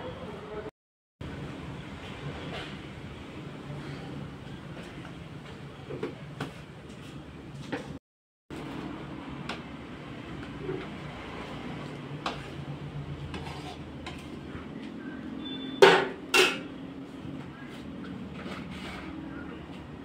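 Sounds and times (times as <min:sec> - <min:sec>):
metal pots and utensils clanking: 0:15.5 - 0:16.7.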